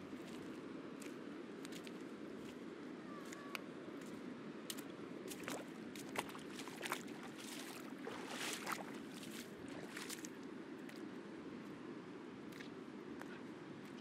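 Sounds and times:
crunching footsteps on reef: 3.3s - 11.0s.

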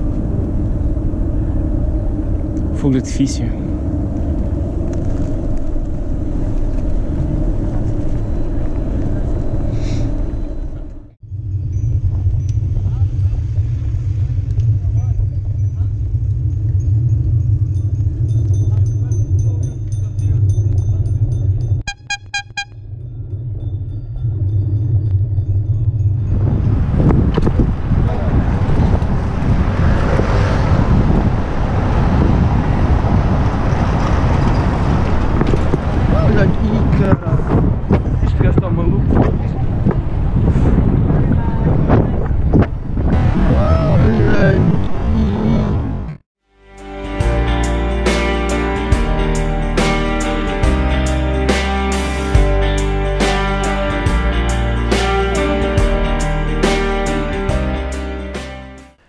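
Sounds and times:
bicycle tyres rolling on cobblestones: 0.0s - 19.9s, 23.0s - 43.9s
wind buffeting microphone: 0.0s - 21.9s, 22.9s - 46.2s
brief high-pitched sound: 21.9s - 22.9s.

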